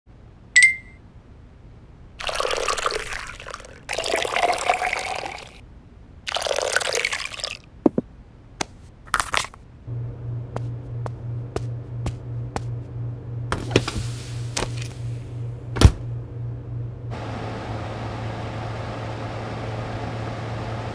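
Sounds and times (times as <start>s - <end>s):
coffee pouring: 2.2s - 5.6s, 6.3s - 7.6s.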